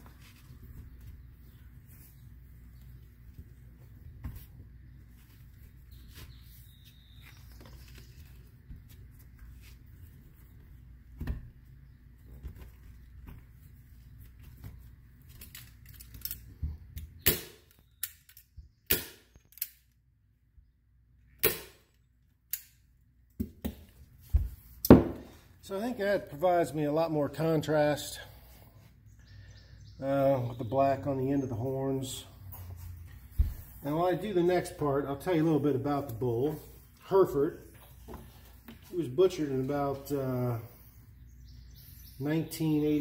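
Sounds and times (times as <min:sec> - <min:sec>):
handling of leather: 0:00.0 - 0:16.8.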